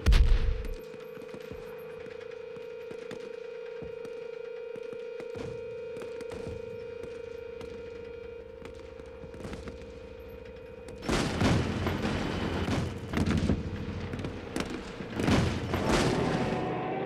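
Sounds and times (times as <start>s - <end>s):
steady tone: 6.6s - 17.0s
rapid gunfire: 11.0s - 16.7s
booming blasts: 11.0s - 17.0s.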